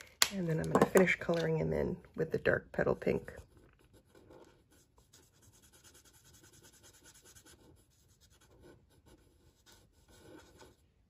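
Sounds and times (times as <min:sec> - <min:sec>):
marker scratching on cardstock: 0:03.1 - 0:10.8.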